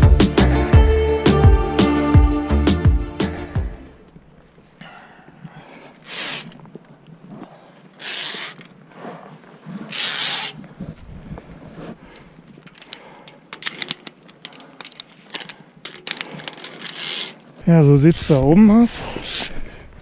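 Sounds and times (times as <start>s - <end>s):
person breathing hard: 4.8s - 6.5s, 11.1s - 13.8s, 14.4s - 17.0s
carabiners clicking on steel cable: 7.9s - 8.8s, 9.8s - 10.6s, 12.2s - 17.5s, 19.1s - 19.6s.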